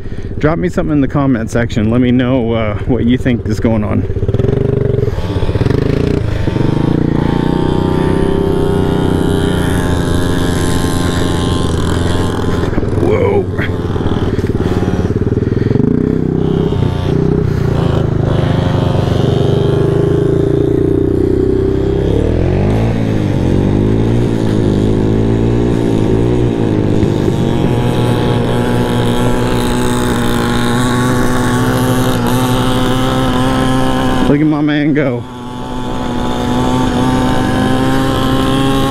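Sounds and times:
scooter engine running: 1.0s - 38.9s.

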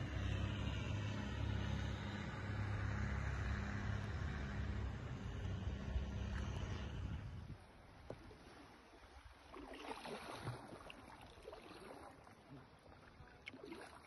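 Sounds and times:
water splashing from paddling: 7.7s - 14.0s.

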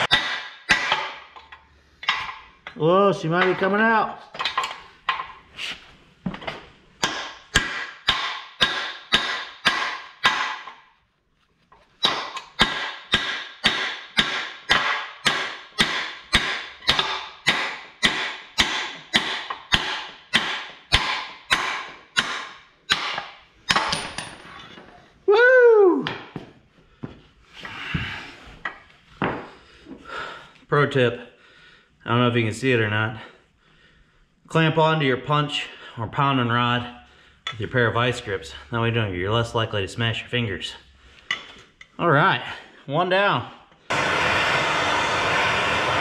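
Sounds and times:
hammer striking steel punch: 0.0s - 1.2s, 7.0s - 10.8s, 12.0s - 24.0s.

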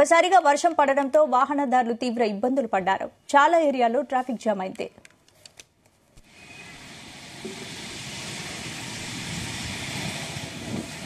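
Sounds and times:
heavy rain hiss: 6.2s - 11.0s.

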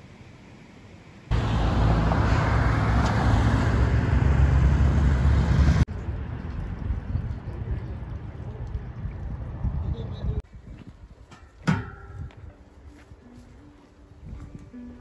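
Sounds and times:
vehicle engine running: 0.0s - 6.4s
road noise: 0.0s - 10.4s.

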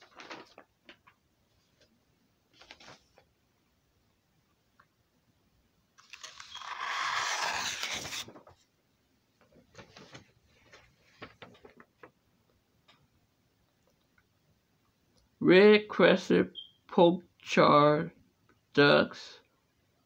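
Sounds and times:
paper crinkles and taps: 0.0s - 1.2s, 9.4s - 12.2s
paper rustling: 0.0s - 1.9s, 2.5s - 3.3s, 6.0s - 8.7s, 9.6s - 12.2s.

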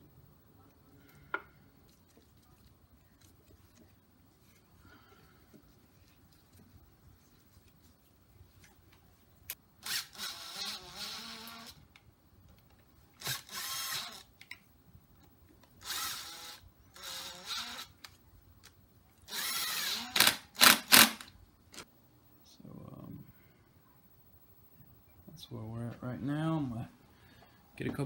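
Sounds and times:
impact driver whirring: 13.2s - 14.2s, 15.8s - 17.9s, 19.3s - 21.3s.

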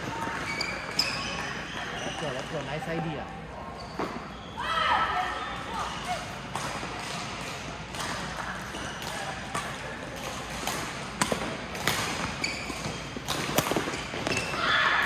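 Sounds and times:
sneaker squeaks on court: 0.0s - 2.8s, 3.6s - 4.7s, 11.2s - 14.8s
rackets hitting shuttlecocks: 6.1s - 14.6s.

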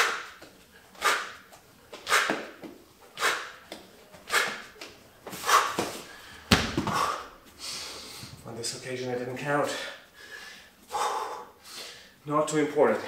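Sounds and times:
man exhaling forcefully: 5.5s - 8.2s
bag thudding on mat: 6.5s - 7.2s.

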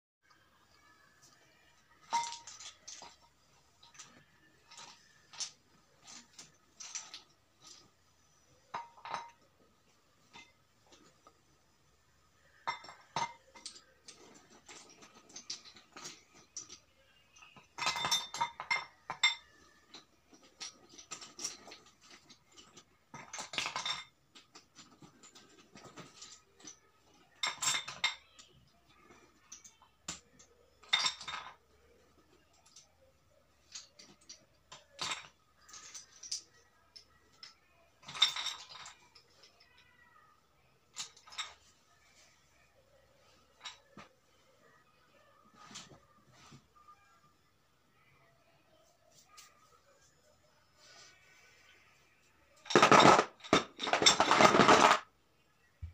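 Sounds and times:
stones clinking in glass bowl: 2.0s - 8.0s, 12.6s - 28.6s, 29.6s - 31.6s, 52.6s - 55.1s.

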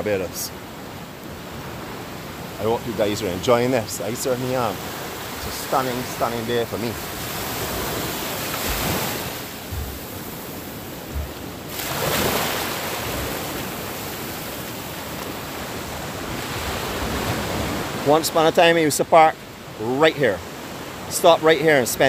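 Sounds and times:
waves washing onto sandy beach: 0.0s - 22.0s
wind buffeting microphone: 1.5s - 18.0s.

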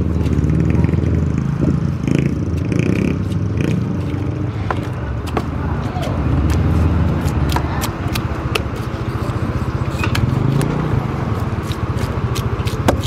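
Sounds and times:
motorbike engine rumbling: 0.0s - 13.0s
knives chopping on wooden block: 11.6s - 13.0s.

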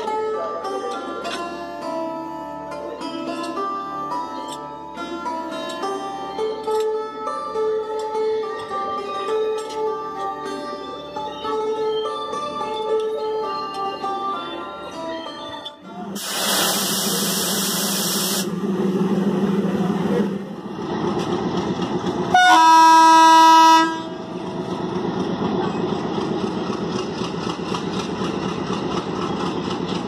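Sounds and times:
loud hiss: 16.2s - 18.5s
diesel engine running: 17.0s - 23.2s, 23.8s - 30.0s
locomotive horn: 22.3s - 24.3s.

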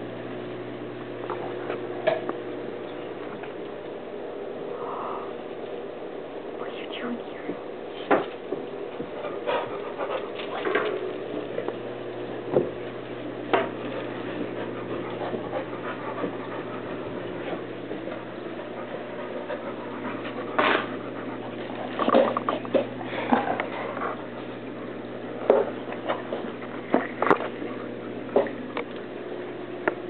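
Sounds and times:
steady low hum: 0.0s - 30.0s
dog panting: 9.0s - 11.0s, 13.7s - 25.0s.

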